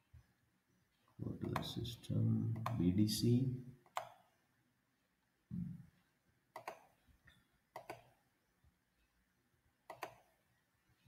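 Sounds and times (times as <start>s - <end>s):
faint computer mouse clicks: 2.5s - 2.8s, 3.9s - 4.2s, 6.5s - 8.2s, 9.9s - 10.3s.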